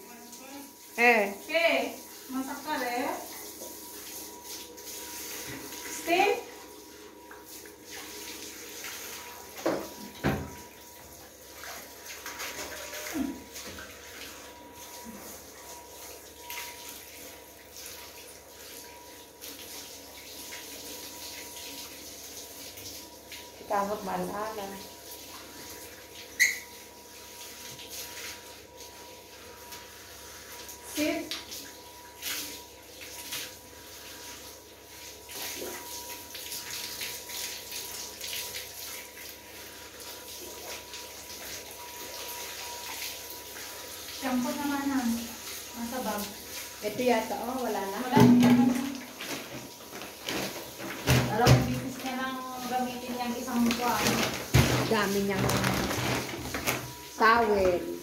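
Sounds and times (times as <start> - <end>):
shower head spraying water: 44.2 - 57.8.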